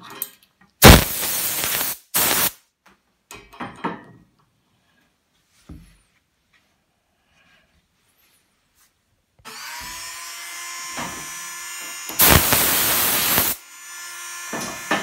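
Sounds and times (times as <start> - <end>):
air blasts hissing: 0.8 - 2.6, 12.2 - 13.6.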